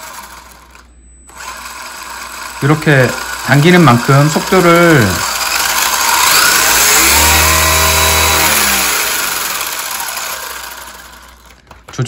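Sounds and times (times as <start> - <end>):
electric motor whining: 0.0 - 11.6.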